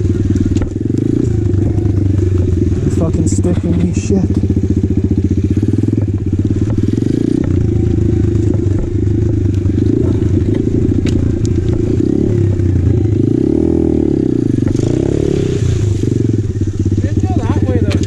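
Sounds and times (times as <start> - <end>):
motorbike engine running: 0.0 - 18.0
bike knocking over sticks: 0.2 - 2.6, 6.0 - 12.7.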